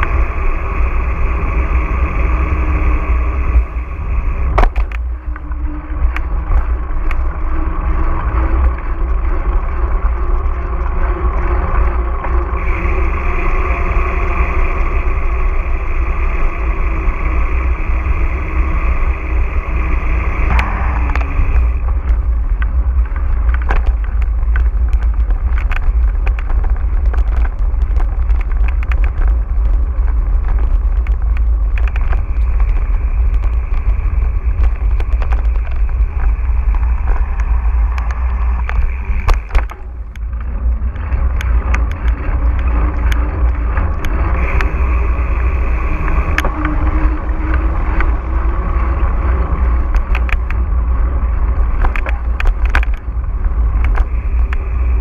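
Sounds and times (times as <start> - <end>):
bike clicks and rattles: 0.0 - 55.0
bike tyre noise: 0.0 - 55.0
wind rush: 0.0 - 55.0.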